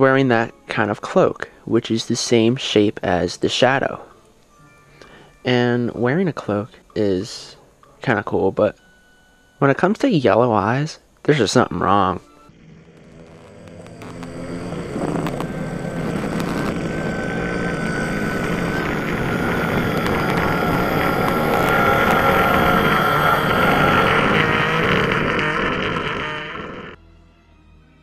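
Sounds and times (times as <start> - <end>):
loud dense rumbling: 12.5 - 27.0.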